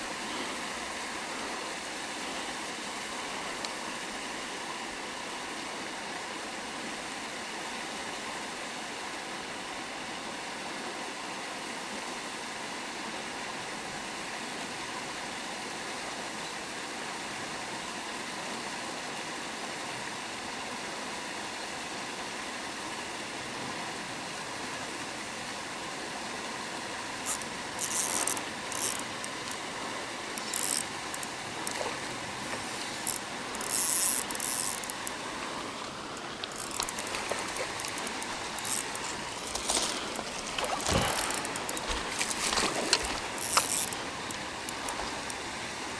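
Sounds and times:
steady outdoor hiss: 0.0s - 45.9s
fishing reel drag buzzing: 27.2s - 29.7s, 30.3s - 32.0s, 32.7s - 35.2s, 36.4s - 45.4s.

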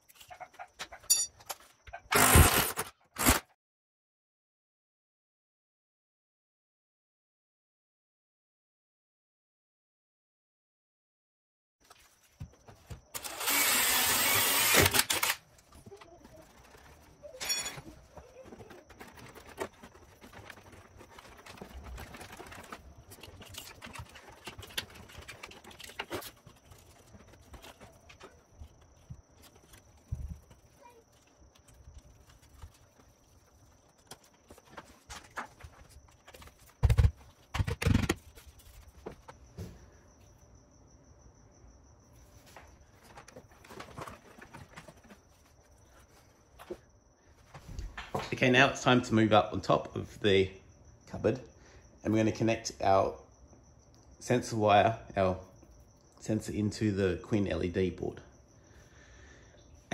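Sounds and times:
cordless drill running: 13.2s - 15.4s.

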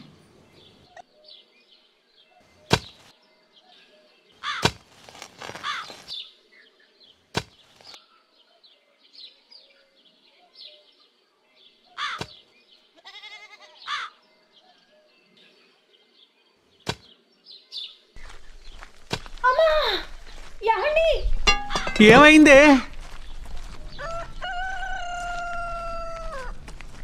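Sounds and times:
birds chirping faintly: 0.0s - 27.0s
digging bar thudding on ground: 2.7s - 3.0s, 4.5s - 6.1s, 7.3s - 7.6s, 16.8s - 17.1s, 18.8s - 19.4s, 21.4s - 22.8s.

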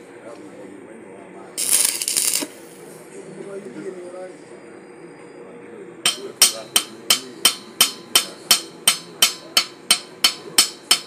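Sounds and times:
hammer striking steel: 6.1s - 11.0s.

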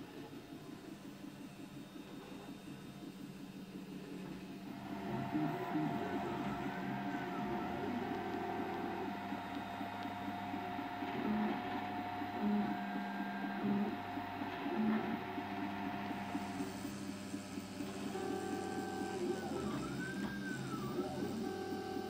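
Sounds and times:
steady hum: 0.0s - 22.0s
stepper motors whining: 4.6s - 22.0s.

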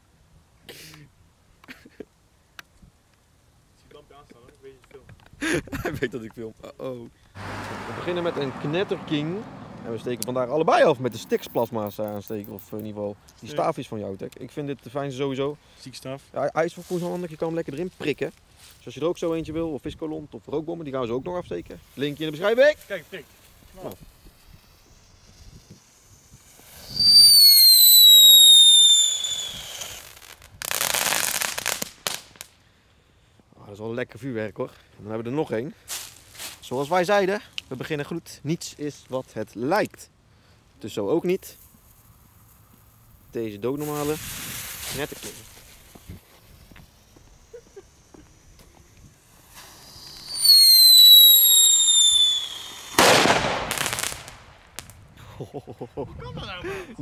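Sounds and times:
firework crackling: 7.4s - 10.3s, 11.1s - 12.8s, 21.7s - 32.6s, 41.4s - 55.2s
firework sharp crack: 25.3s - 32.5s, 49.2s - 55.1s
firework whistle falling in pitch: 26.8s - 30.2s, 49.8s - 53.2s
firework bang: 49.5s - 55.0s
noisy crackle: 51.8s - 55.1s.

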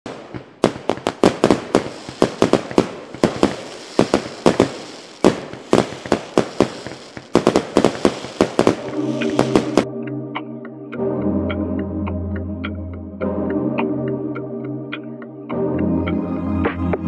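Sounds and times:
sharp echoing cracks and pops: 0.1s - 9.9s.

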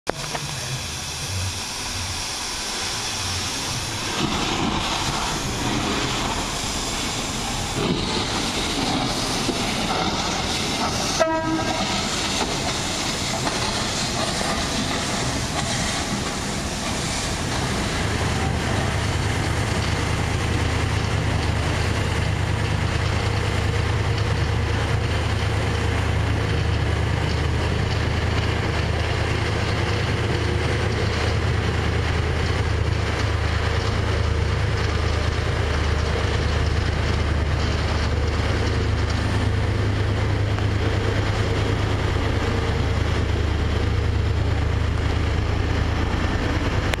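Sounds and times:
steam hissing: 0.1s - 47.0s
steam locomotive pulling away: 0.1s - 47.0s
train whistle toot: 11.1s - 12.0s.

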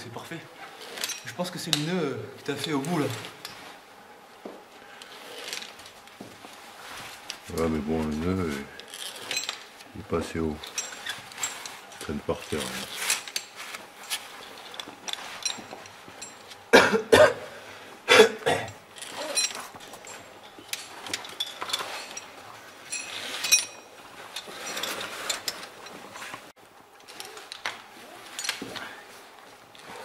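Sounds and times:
metallic clicks of rope ascenders: 4.7s - 16.7s, 18.7s - 30.0s.

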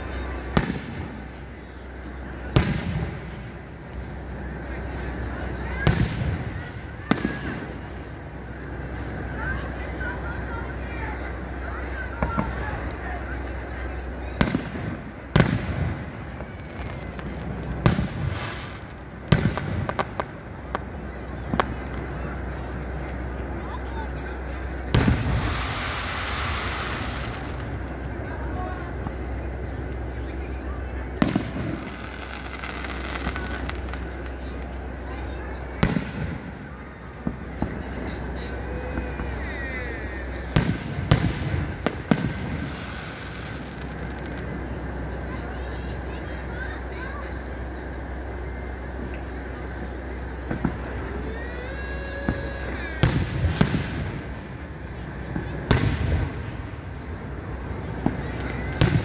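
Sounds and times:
firework shells booming: 14.4s - 22.2s, 40.2s - 44.8s, 52.3s - 54.6s, 55.2s - 59.0s.

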